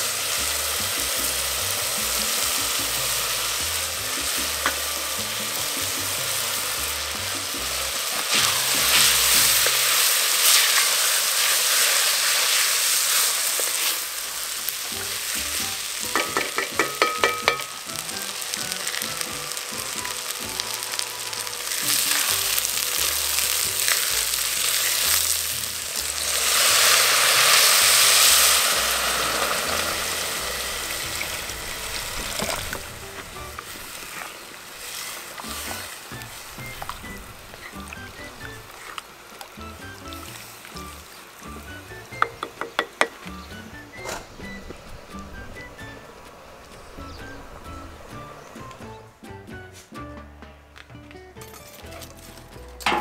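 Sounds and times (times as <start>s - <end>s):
rice sizzling in oil: 0.0s - 48.9s
wooden spoon stirring: 14.7s - 26.6s, 27.6s - 41.1s, 42.2s - 43.4s.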